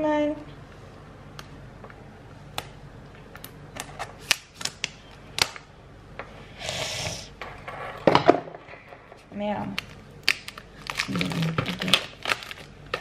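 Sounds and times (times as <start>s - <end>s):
plastic film rustling: 9.8s - 13.0s
scissors snipping plastic wrap: 9.8s - 13.0s.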